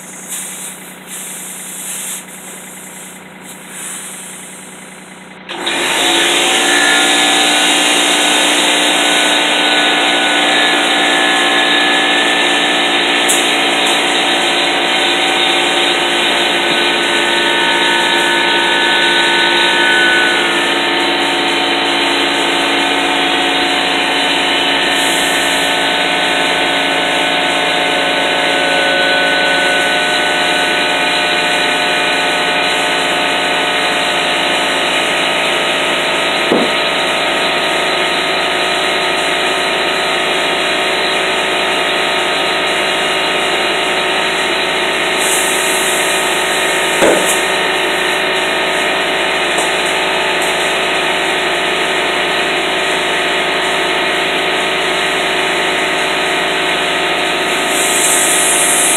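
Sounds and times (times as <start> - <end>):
air hissing into tire: 0.0 - 5.2, 13.3 - 14.1, 24.8 - 25.9, 45.1 - 48.4, 57.4 - 58.9
air compressor running: 0.0 - 58.9
brief knocks: 36.5 - 36.9.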